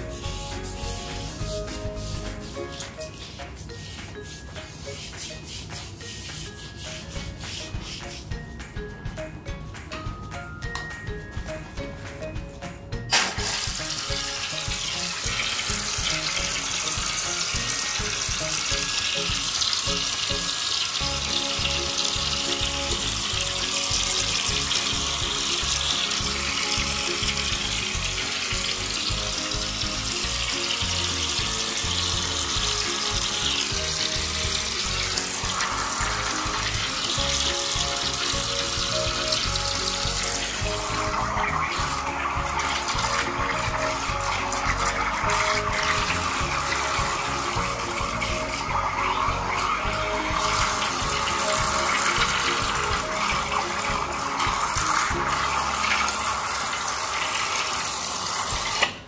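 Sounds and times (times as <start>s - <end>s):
background music with low beat: 0.0s - 58.9s
water jet splashing into drain: 13.1s - 59.0s.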